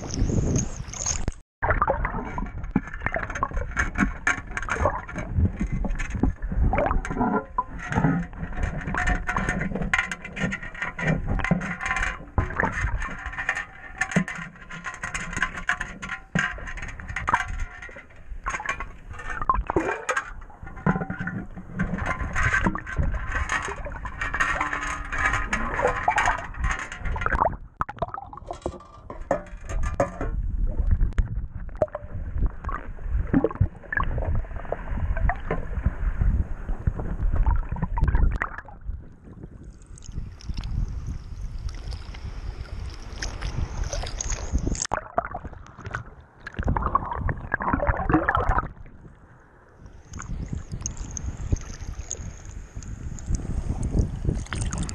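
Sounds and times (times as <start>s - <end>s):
muffled water sloshing and gurgling: 0.0s - 54.9s
clicks and knocks: 2.0s - 32.1s.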